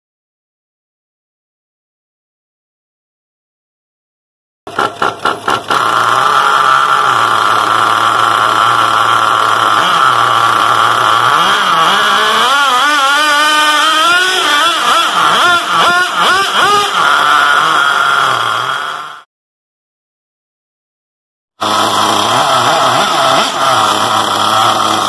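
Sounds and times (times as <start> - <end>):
nitro engine revving: 4.7 - 19.3, 21.6 - 25.0.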